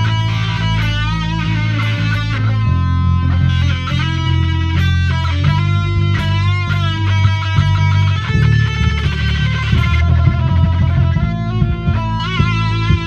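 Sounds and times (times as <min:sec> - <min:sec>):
solo guitar with vibrato: 0:00.0 - 0:13.0.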